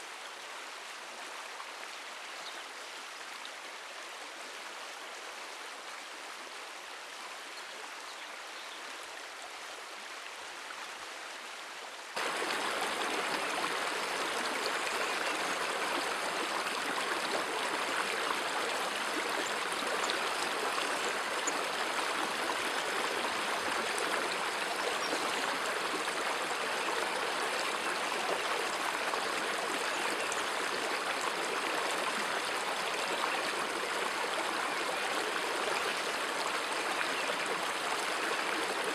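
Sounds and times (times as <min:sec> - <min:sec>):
river rushing over rocks: 0:12.2 - 0:26.5.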